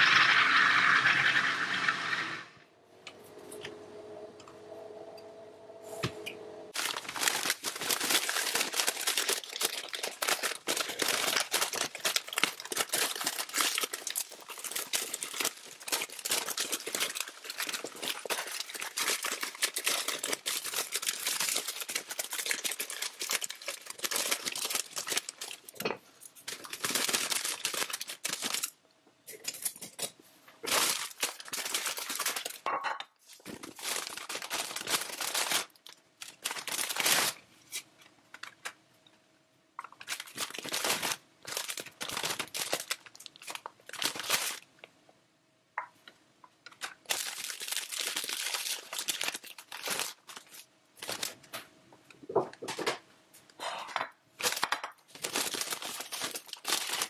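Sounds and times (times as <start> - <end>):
plastic bag crinkling: 6.7 - 28.8, 30.6 - 38.7, 39.8 - 44.7, 46.6 - 51.5, 54.4 - 57.0.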